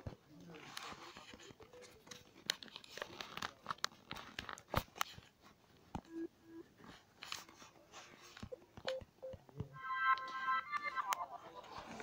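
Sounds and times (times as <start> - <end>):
low electronic beeps: 8.5 - 11.7.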